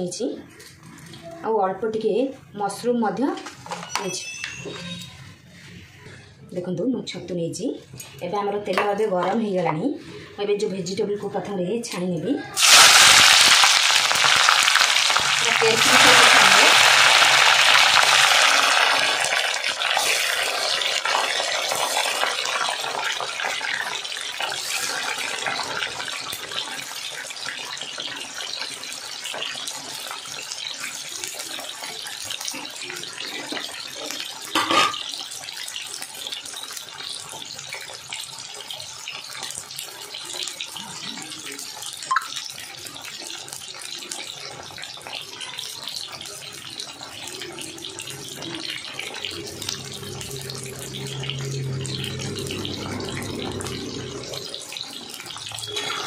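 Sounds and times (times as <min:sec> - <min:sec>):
vegetables sizzling in oil: 0:12.5 - 0:56.0.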